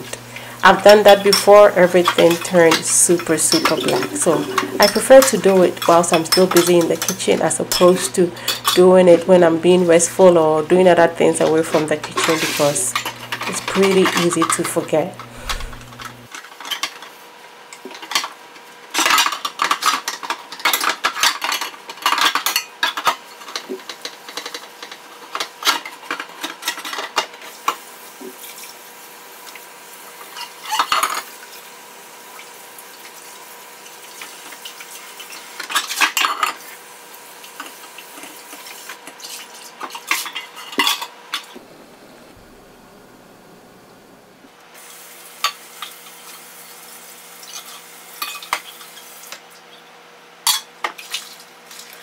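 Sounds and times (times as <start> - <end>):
faucet water running: 0.0 - 16.3
metal pots clattering in sink: 1.1 - 8.9
faint steady hum: 41.6 - 44.6.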